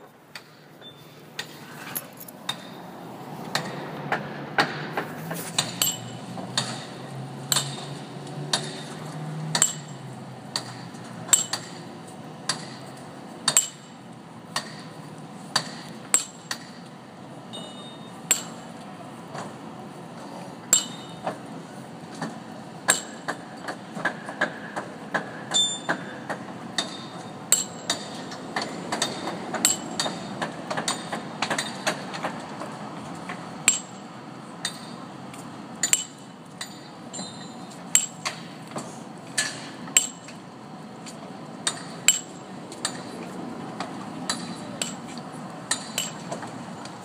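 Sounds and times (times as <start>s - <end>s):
hammer striking chisel on stone: 10.6s - 11.8s, 35.8s - 38.4s.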